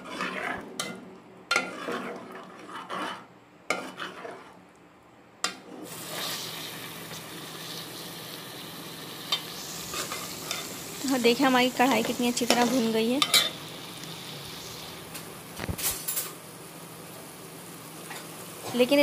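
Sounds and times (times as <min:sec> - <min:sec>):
metal ladle scraping a pot: 0:00.0 - 0:04.6
sauce sizzling in oil: 0:05.8 - 0:19.0.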